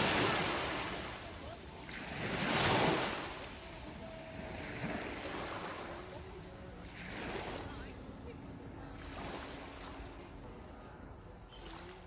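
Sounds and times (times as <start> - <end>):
small waves breaking on pebbles: 0.0 - 6.1.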